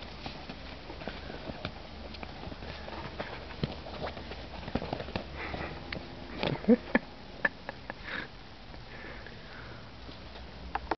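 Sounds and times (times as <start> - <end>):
puppies sniffing and scuffling: 0.0 - 8.0.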